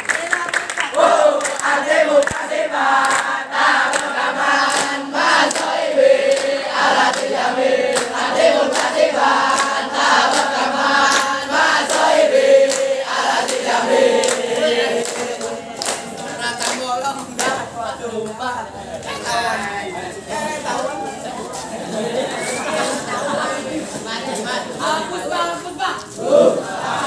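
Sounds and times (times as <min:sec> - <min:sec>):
hand claps: 0:00.0 - 0:07.3, 0:07.9 - 0:18.4
boys chanting in unison: 0:00.8 - 0:21.0, 0:21.8 - 0:27.0.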